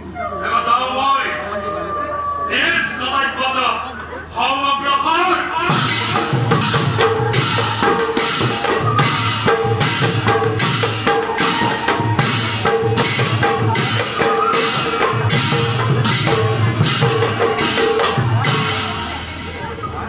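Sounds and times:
drums playing dance rhythm: 5.6s - 19.7s.

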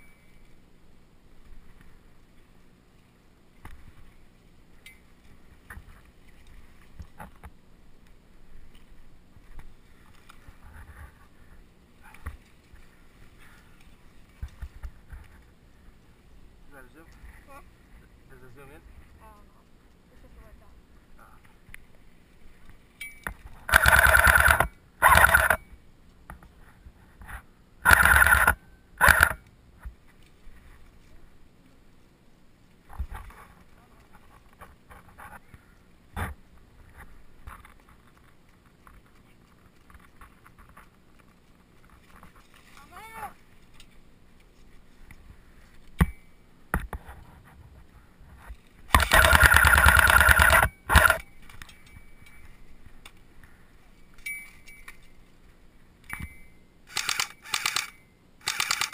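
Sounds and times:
airsoft rifle firing bursts: 23.7s - 25.6s, 27.8s - 29.4s, 48.9s - 51.2s
motor and gearbox whirring: 23.7s - 25.6s, 27.9s - 29.4s, 48.9s - 51.2s, 56.9s - 58.9s
sharp clicks: 23.7s - 25.6s, 27.8s - 29.5s, 48.9s - 51.8s, 56.9s - 58.9s.

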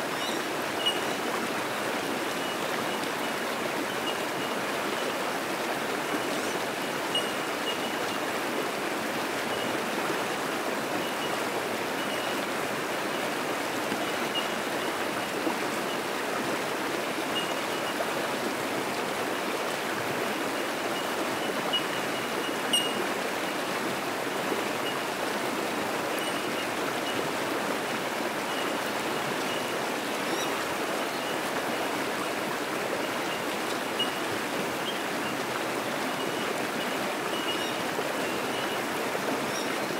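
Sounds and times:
creek rushing over rocks: 0.0s - 39.9s
bird high tink notes: 21.7s - 23.0s.

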